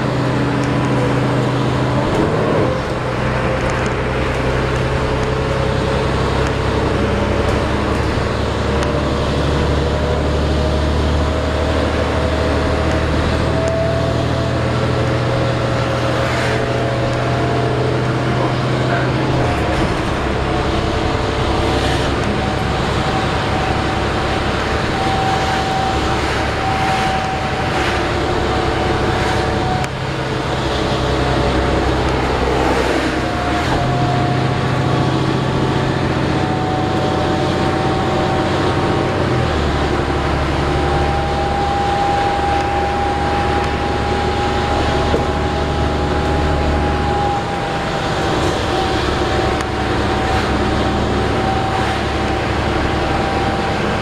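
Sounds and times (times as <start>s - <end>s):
bus diesel engine running: 0.0s - 54.0s
thin whine: 21.4s - 37.8s.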